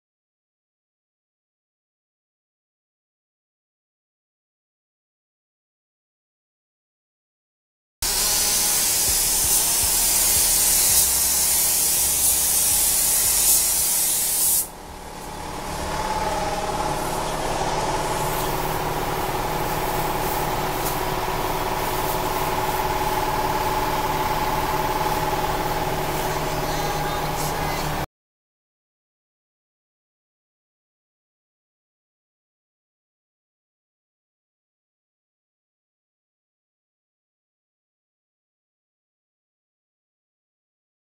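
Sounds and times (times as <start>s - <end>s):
paint spray gun hissing: 8.0s - 28.0s
machine hum with held tones: 8.0s - 28.1s.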